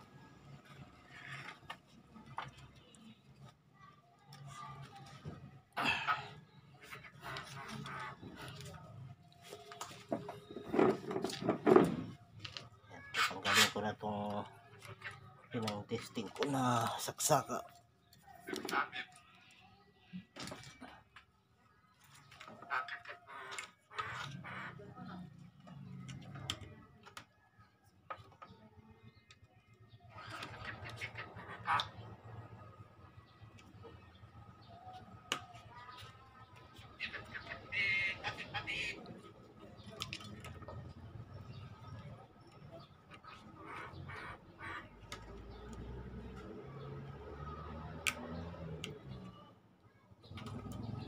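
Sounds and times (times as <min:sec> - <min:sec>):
clicks: 0:45.0 - 0:49.4.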